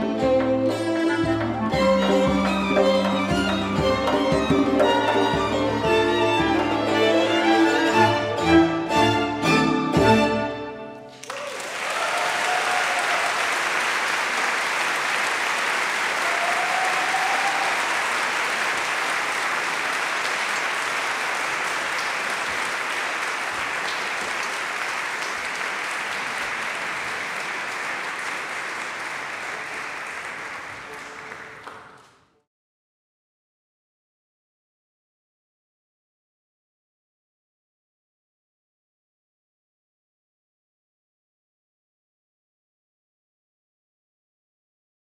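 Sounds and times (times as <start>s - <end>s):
string orchestra bowed chords: 0.0s - 11.1s
calls from the crowd: 11.1s - 31.8s
audience applause: 11.1s - 32.2s.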